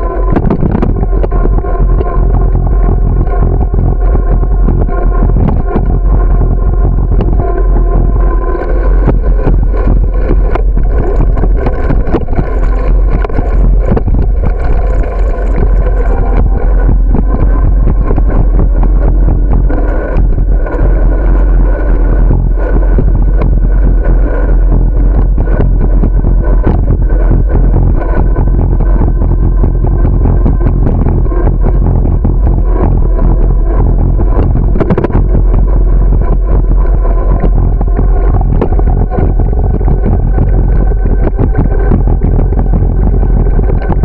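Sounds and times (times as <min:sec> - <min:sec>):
wind buffeting microphone: 0:00.0 - 0:44.0.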